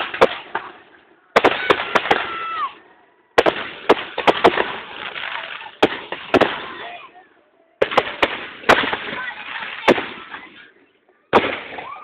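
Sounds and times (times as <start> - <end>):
fireworks bangs and crackles: 0.0 - 7.2, 7.8 - 12.0.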